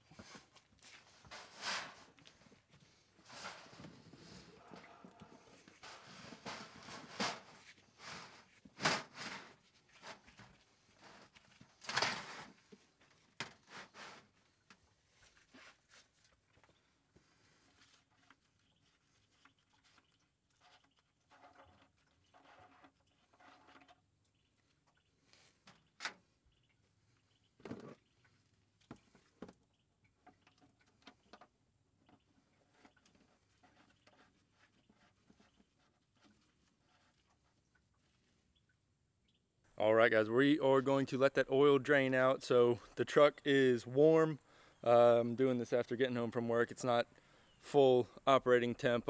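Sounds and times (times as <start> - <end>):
plastic pan scraping on ground: 0.2 - 2.2, 2.9 - 14.4.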